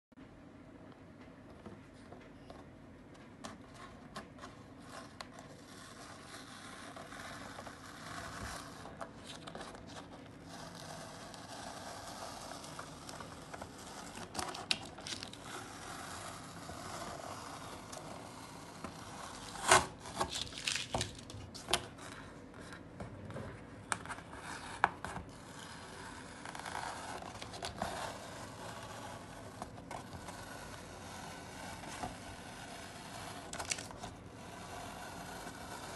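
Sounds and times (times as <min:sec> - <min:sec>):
paper rubbing and rustling: 0:03.7 - 0:22.4, 0:24.1 - 0:35.9
masking tape peeling off paper: 0:04.9 - 0:21.8, 0:33.1 - 0:34.1.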